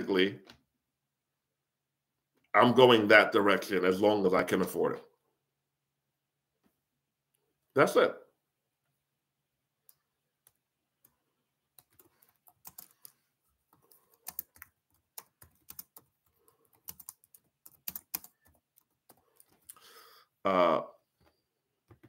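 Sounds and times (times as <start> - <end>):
faint keyboard typing: 9.8 - 19.9.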